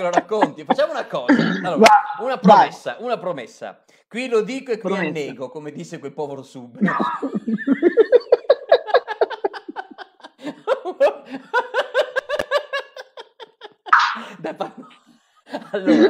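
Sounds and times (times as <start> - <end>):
men laughing: 0.0 - 1.9, 4.9 - 5.4, 6.8 - 16.0.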